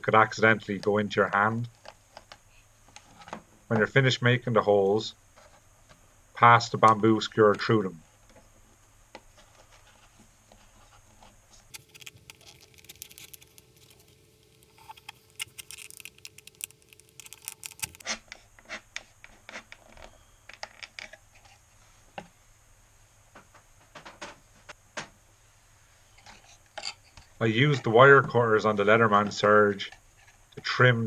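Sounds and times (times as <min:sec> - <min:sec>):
plastic bottle crackling: 0:11.7 - 0:18.1
skewers scratching and clicking: 0:11.7 - 0:18.2.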